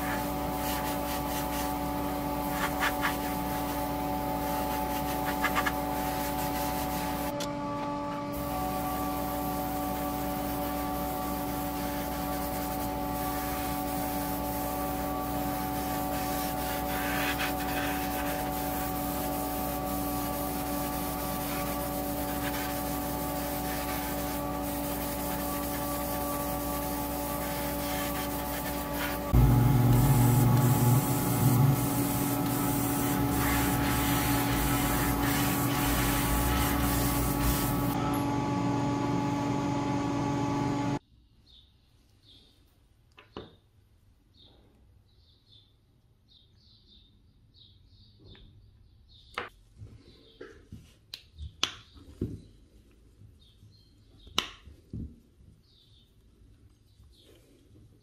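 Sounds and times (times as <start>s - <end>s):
hand sanding: 0.0s - 7.3s, 8.6s - 38.0s
steady electric hum: 0.0s - 41.0s
louder low hum: 18.6s - 41.0s.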